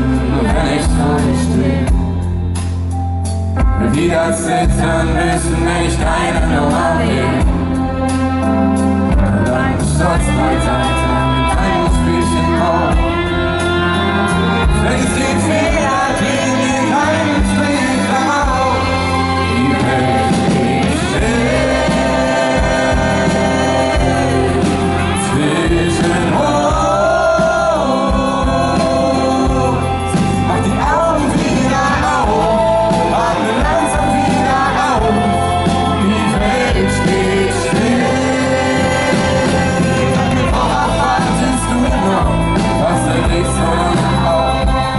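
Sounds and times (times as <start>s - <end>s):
man singing: 0.0s - 2.2s, 3.6s - 44.9s
acoustic guitar: 0.0s - 44.9s
drums: 0.0s - 44.9s.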